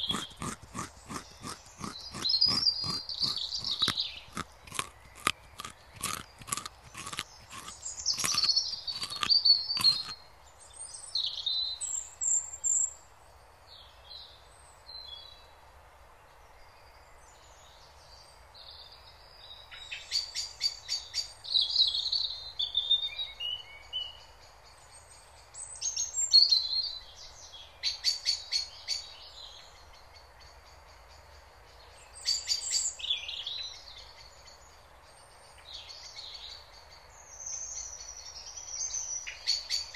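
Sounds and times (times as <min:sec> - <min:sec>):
rabbit chewing grass: 0:00.0 - 0:10.2
songbirds chirping and trilling: 0:00.0 - 0:13.0.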